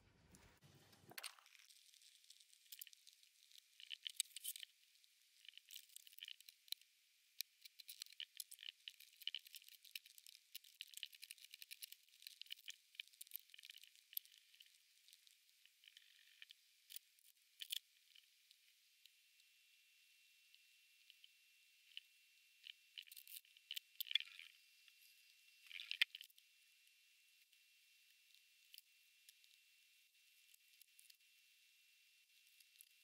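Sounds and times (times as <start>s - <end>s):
insect mandibles crunching: 1.1s - 4.7s, 5.4s - 6.6s.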